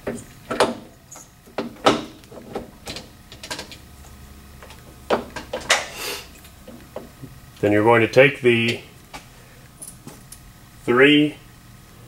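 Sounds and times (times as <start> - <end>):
metal parts clicking and knocking: 0.1 - 3.8.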